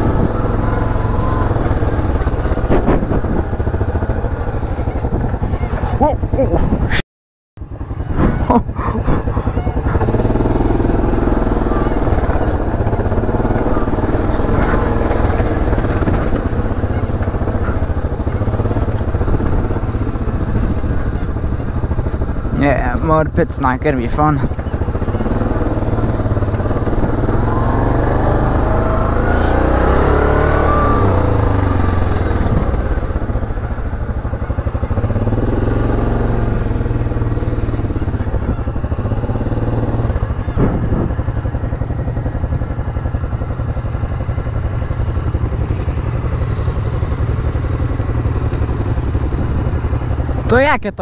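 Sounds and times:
atv engine revving: 0.0s - 7.0s, 7.6s - 51.0s.

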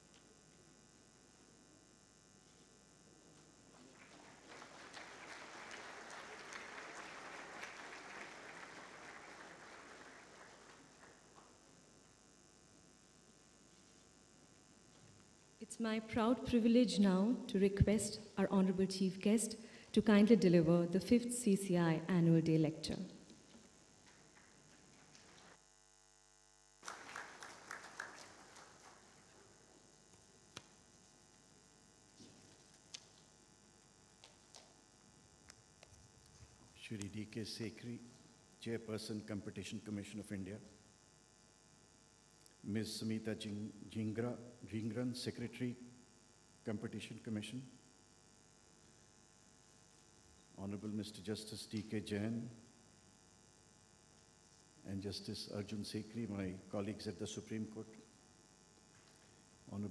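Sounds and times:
audience applauding: 3.7s - 11.4s, 24.0s - 25.6s, 26.8s - 29.6s.

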